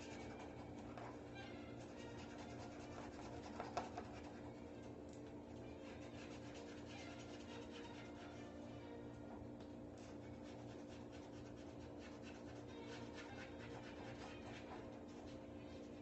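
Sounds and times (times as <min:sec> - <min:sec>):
drawing tool scratching canvas: 0:01.8 - 0:04.4, 0:10.0 - 0:15.8.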